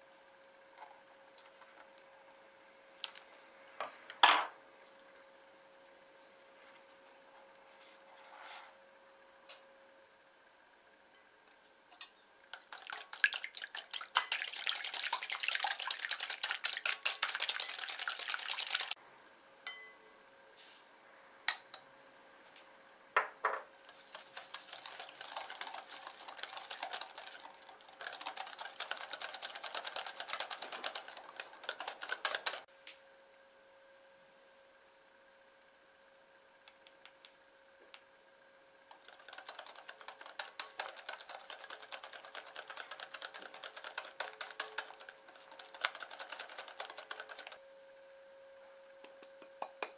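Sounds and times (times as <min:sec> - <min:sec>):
whisk ticking against glass bowl: 0:12.5 - 0:19.0, 0:23.8 - 0:32.7, 0:38.9 - 0:47.6.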